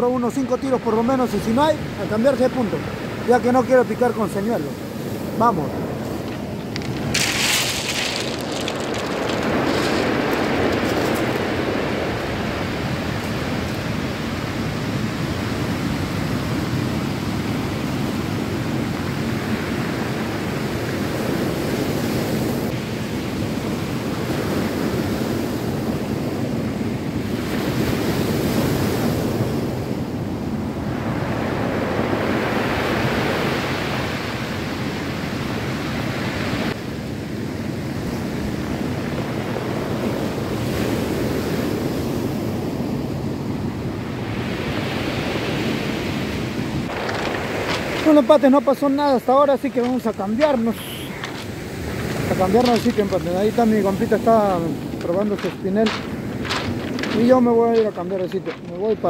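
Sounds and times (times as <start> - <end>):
surf breaking on pebble beach: 4.2 - 17.4, 44.4 - 59.0.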